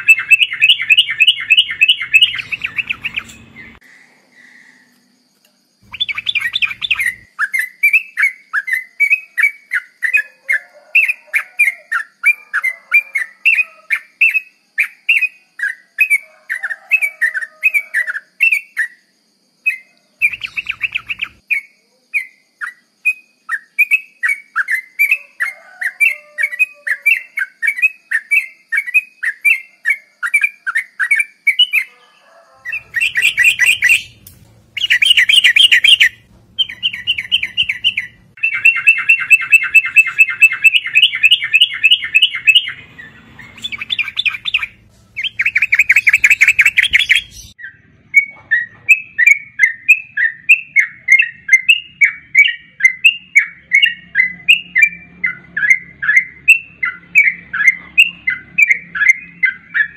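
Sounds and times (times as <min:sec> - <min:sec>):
bubbling birdsong: 0:00.0 - 0:03.8, 0:05.8 - 0:07.3, 0:20.2 - 0:21.4, 0:32.7 - 0:47.7
bird chirping: 0:00.0 - 0:59.9.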